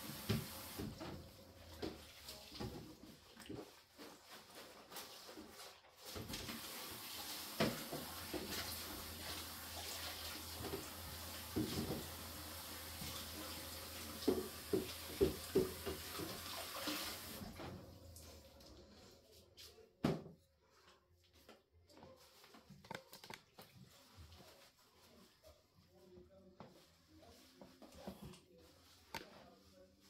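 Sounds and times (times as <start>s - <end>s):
liquid running into plastic basin: 0.0s - 19.0s.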